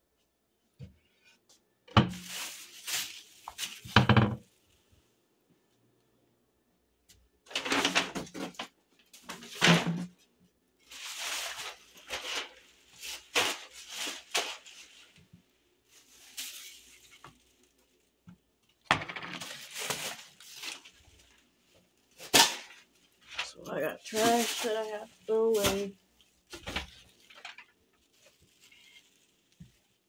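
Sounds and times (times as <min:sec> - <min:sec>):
plastic trash bag rustling: 0:02.0 - 0:04.3, 0:10.8 - 0:18.2, 0:19.1 - 0:30.0
paper bag being handled: 0:02.1 - 0:04.0, 0:10.8 - 0:15.2, 0:15.9 - 0:18.2, 0:19.3 - 0:21.5, 0:22.1 - 0:30.0.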